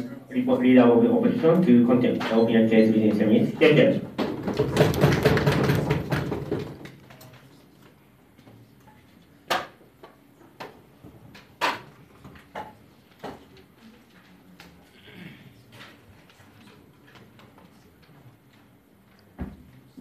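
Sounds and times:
sharp knocks: 4.2s - 6.9s.

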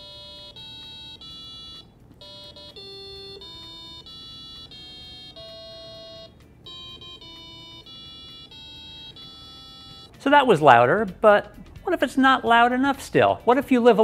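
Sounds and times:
electronic square-wave beep melody: 0.0s - 10.2s.

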